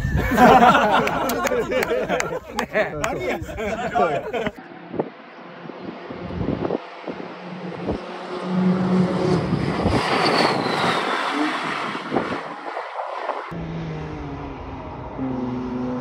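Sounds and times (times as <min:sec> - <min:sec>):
distant engine drone: 0:00.0 - 0:16.0
race car passing at speed: 0:03.4 - 0:16.0.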